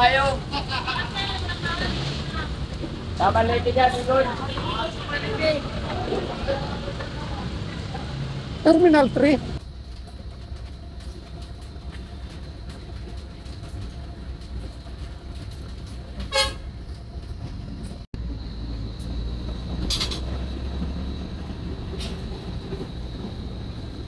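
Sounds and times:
bus engine rumble: 0:00.0 - 0:24.0
short horn toot: 0:16.3 - 0:16.7.

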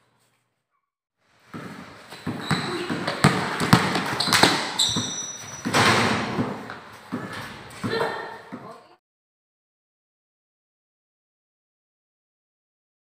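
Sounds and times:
footsteps: 0:01.3 - 0:09.0
basketball bouncing on concrete: 0:01.5 - 0:08.8.

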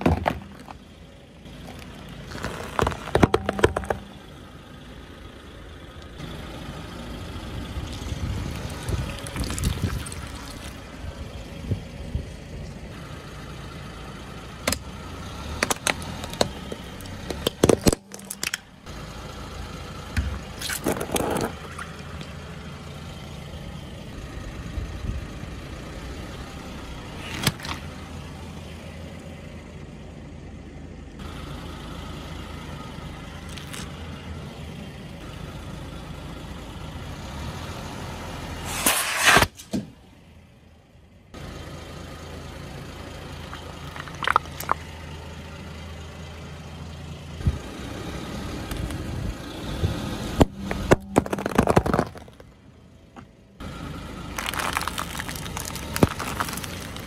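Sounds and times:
car engine running: 0:00.0 - 0:38.7, 0:39.9 - 0:57.0
tyre crushing objects: 0:01.7 - 0:04.0, 0:20.6 - 0:21.7, 0:33.5 - 0:33.9, 0:50.4 - 0:52.5, 0:54.4 - 0:57.0
sharp cracks and pops: 0:33.4 - 0:33.9, 0:43.6 - 0:44.8, 0:50.4 - 0:52.5, 0:54.4 - 0:57.0.

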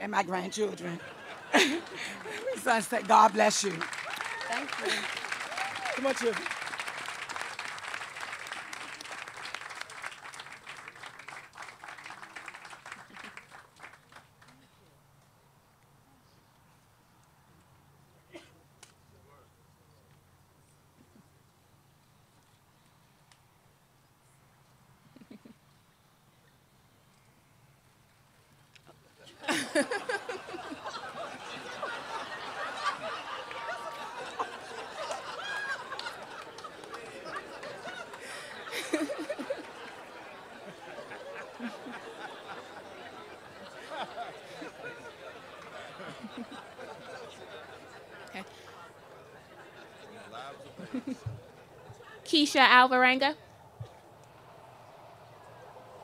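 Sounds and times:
light laughter: 0:00.8 - 0:06.5, 0:12.7 - 0:13.6, 0:25.0 - 0:25.7, 0:28.8 - 0:52.2
audience applauding: 0:01.1 - 0:14.6, 0:29.5 - 0:52.2.

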